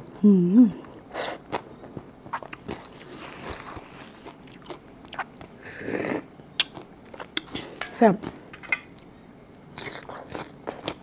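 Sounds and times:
wet sucking and chewing: 0:00.8 - 0:07.6.

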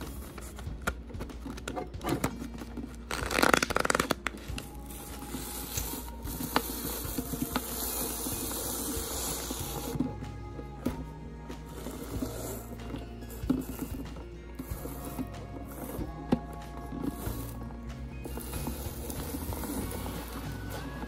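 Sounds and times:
paper shredder motor buzzing: 0:18.2 - 0:21.0.

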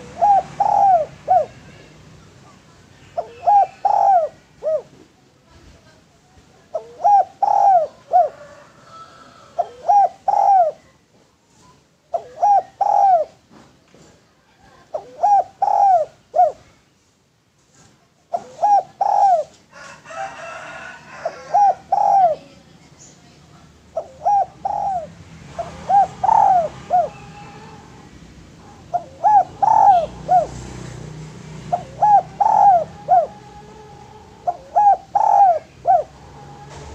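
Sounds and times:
dove cooing: 0:00.0 - 0:01.9, 0:03.2 - 0:05.0, 0:06.7 - 0:10.9, 0:12.1 - 0:13.4, 0:14.7 - 0:16.7, 0:18.3 - 0:22.6, 0:23.9 - 0:36.9.

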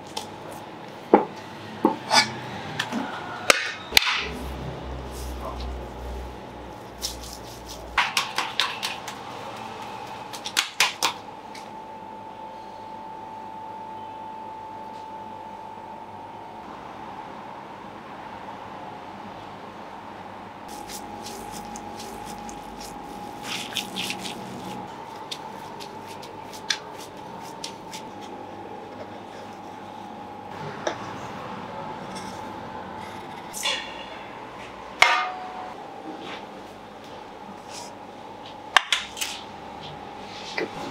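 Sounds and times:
hands slapping minced meat: 0:07.0 - 0:09.2, 0:10.3 - 0:11.2
faint steady hum: 0:09.0 - 0:40.9
wet squelches of kneading meat: 0:20.7 - 0:28.3.

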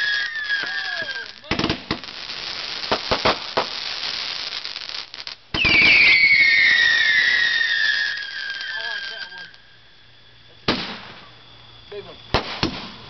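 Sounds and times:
firework bangs and crackling: 0:00.0 - 0:13.0
fireworks whistling down in pitch: 0:00.0 - 0:13.0.

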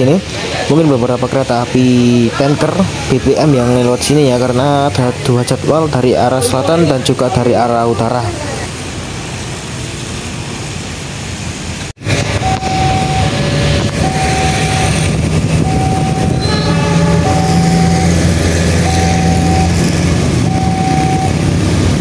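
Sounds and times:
traffic noise: 0:00.0 - 0:22.0
low engine rumble: 0:12.0 - 0:22.0
level crossing warning alarm: 0:12.2 - 0:21.7.

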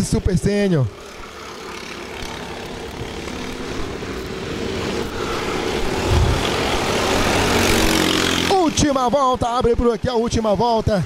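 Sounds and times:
kart engines racing: 0:00.0 - 0:11.0
brief low rumble: 0:06.0 - 0:06.8.

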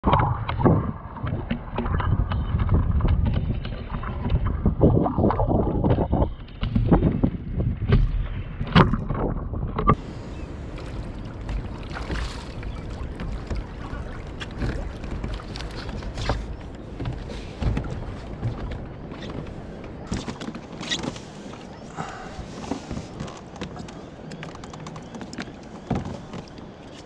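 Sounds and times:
water noise around kayak: 0:00.0 - 0:27.0
wind: 0:00.0 - 0:27.0
gear knocking on hull: 0:00.1 - 0:10.0, 0:12.6 - 0:20.8.

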